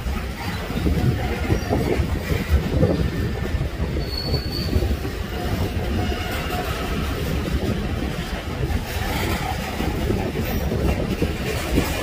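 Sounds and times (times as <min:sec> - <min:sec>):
train wheels rumbling on rail: 0:00.0 - 0:12.0
high-pitched wheel squeal: 0:04.0 - 0:05.0.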